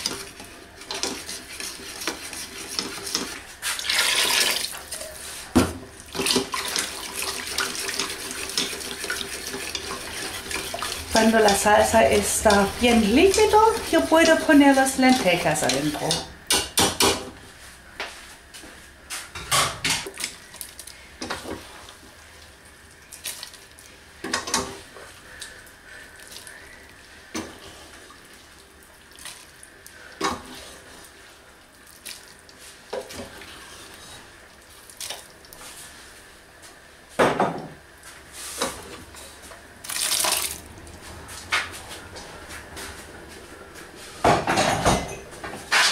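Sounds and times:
lentils splashing into sauce: 39.8 - 40.7.

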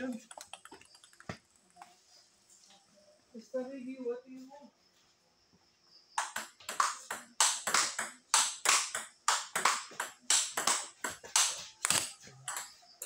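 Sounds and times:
table tennis ball clicking: 0.0 - 1.5, 6.2 - 12.8.

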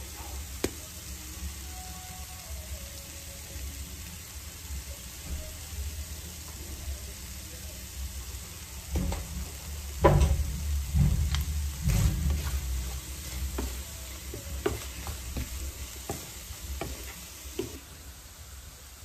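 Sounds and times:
chicken livers sizzling: 0.0 - 19.0
spatula scraping frying pan: 11.2 - 17.8.

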